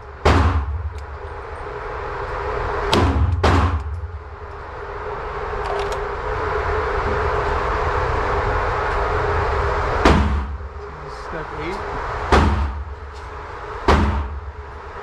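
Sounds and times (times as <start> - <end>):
sharp knock: 2.9 - 3.9, 10.0 - 10.6, 12.3 - 12.8, 13.9 - 14.4.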